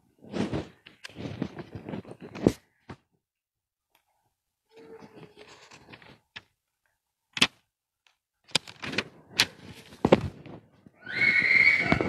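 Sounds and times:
soft rustling: 0.2s - 3.1s.

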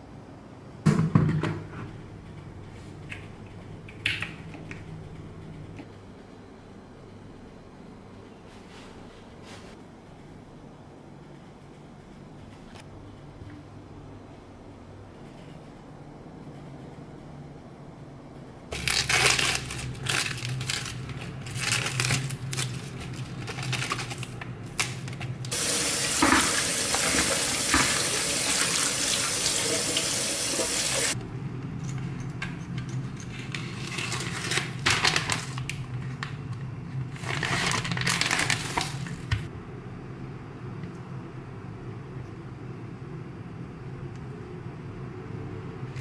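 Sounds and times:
plastic packet rustling: 18.7s - 25.4s, 33.8s - 35.8s, 37.0s - 39.4s
tap water running into colander: 25.5s - 31.2s
kitchen clattering: 25.6s - 31.2s.

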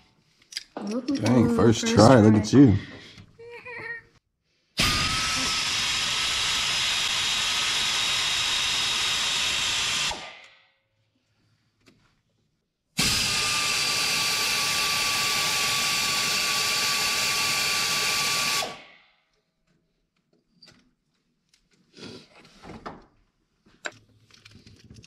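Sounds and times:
pneumatic air ratchet whining: 4.8s - 10.6s, 13.0s - 18.9s.

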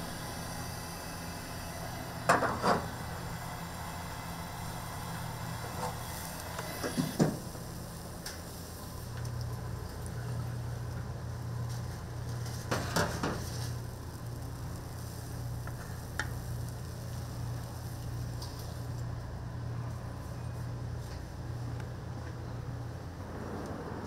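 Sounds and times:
eggs sizzling in a frying pan: 2.3s - 19.1s.

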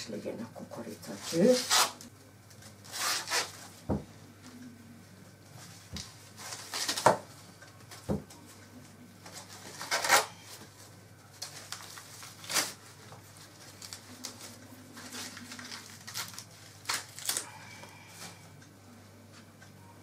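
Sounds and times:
corn husks tearing: 2.8s - 3.6s, 9.3s - 10.5s, 11.4s - 17.6s.

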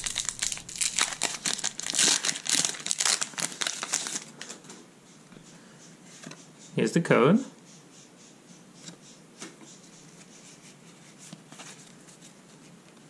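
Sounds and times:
foil wrapper crinkling: 0.0s - 4.6s.

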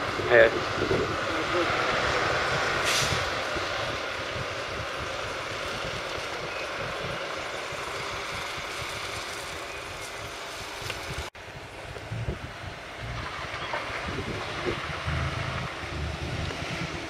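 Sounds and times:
bus diesel engine running: 0.0s - 17.0s
short hiss: 2.8s - 3.2s.

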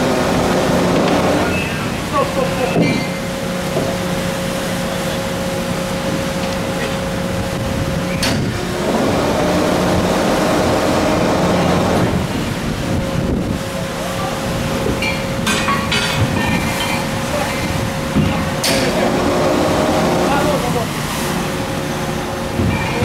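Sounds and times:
engine and machinery hum: 0.0s - 23.0s
sea washing against hull: 0.0s - 23.0s
wind on microphone: 7.2s - 16.8s, 22.4s - 23.0s.

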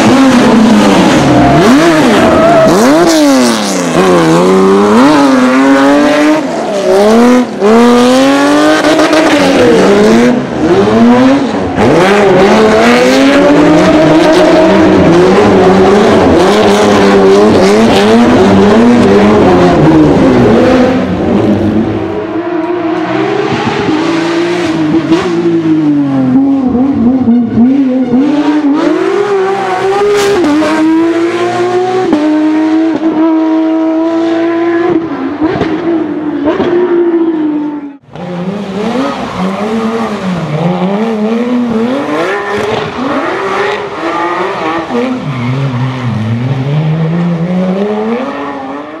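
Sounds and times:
car engine revving hard: 0.0s - 49.0s
tyres squealing and skidding: 0.5s - 5.7s, 38.2s - 49.0s.

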